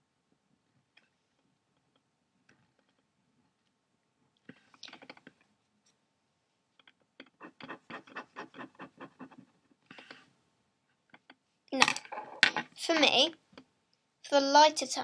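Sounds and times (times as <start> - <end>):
ballpoint pen scratching on paper: 7.2 - 10.2.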